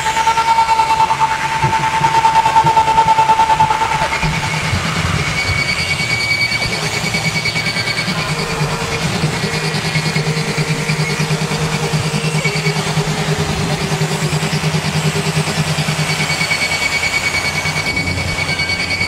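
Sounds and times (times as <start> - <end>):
high whining tones: 0.0 - 19.0
throbbing low drone: 1.0 - 19.0
middle tone: 17.6 - 19.0.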